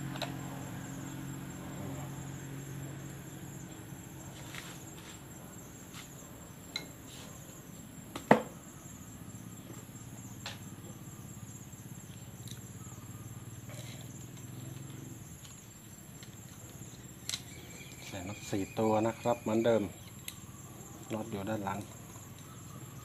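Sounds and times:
high insect drone: 0.0 - 23.0
sharp knock on wooden workbench: 8.2 - 8.5.

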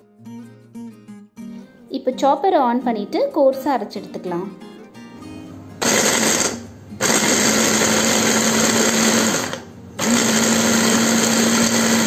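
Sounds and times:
electric food chopper motor: 5.8 - 12.0.

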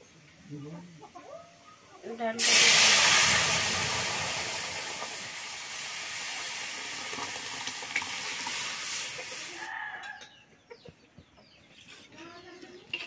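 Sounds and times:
hot oil sizzling: 2.1 - 9.7
water pouring: 2.4 - 9.6.

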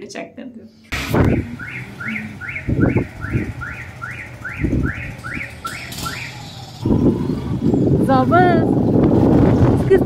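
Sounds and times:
motorbike road and wind noise: 0.9 - 10.0
high chirp rising and falling: 1.3 - 7.4.

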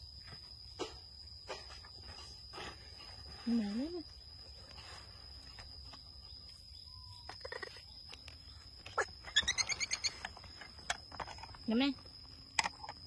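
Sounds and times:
animal squeaks and chirps: 6.9 - 10.5.

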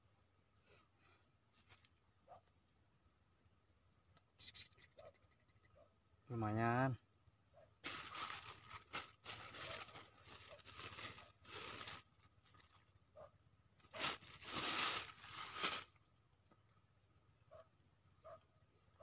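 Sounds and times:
rustling crinkling noise: 1.5 - 2.6, 7.8 - 13.0, 13.8 - 16.1.

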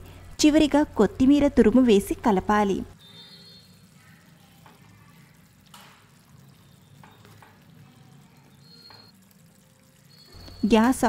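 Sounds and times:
spatula stirring thick curry: 3.0 - 10.6.

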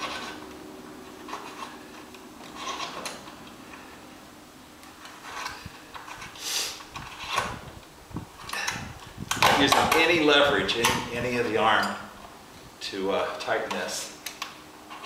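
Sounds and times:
wrench rubbing: 0.0 - 3.9, 4.9 - 7.7
person breathing hard: 6.4 - 6.8.

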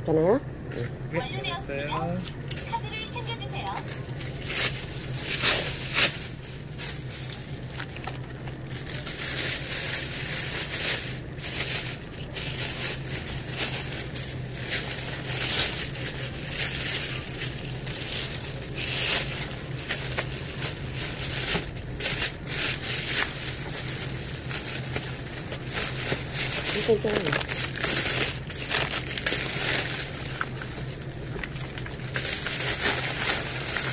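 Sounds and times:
steady low hum: 0.0 - 33.9
plastic bag rustling: 2.3 - 33.9.

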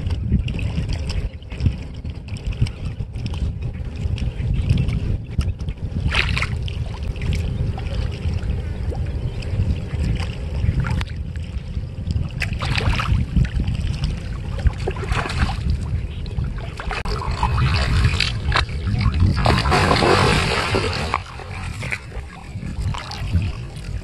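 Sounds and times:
wind buffeting microphone: 0.0 - 24.0
water sloshing and splashing: 6.0 - 24.0
fish thrashing at water surface: 16.9 - 22.3.

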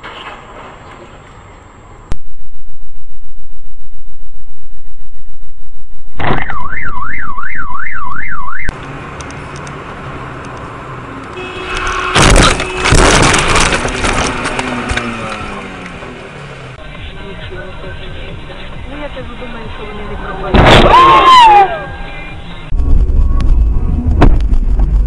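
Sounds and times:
car road noise: 6.2 - 25.0
car alarm siren warbling: 6.4 - 8.7
loud crashing clatter: 12.1 - 15.0.

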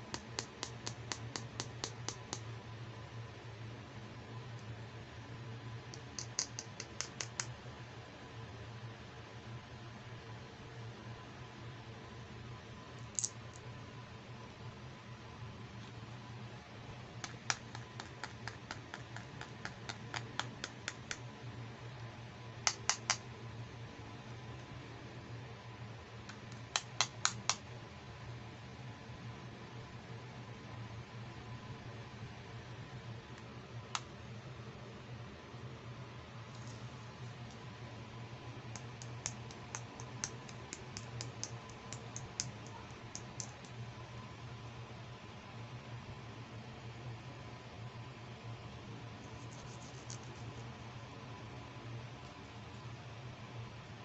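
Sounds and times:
faint steady hum: 0.0 - 54.0
fingers clicking on plastic hairbrush: 6.0 - 7.5, 17.2 - 21.2, 38.8 - 43.8.

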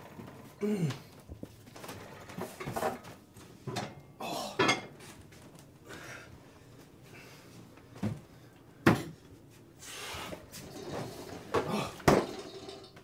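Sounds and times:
kitchen knocks and clunks: 2.2 - 4.0, 4.6 - 5.0, 8.8 - 9.2.

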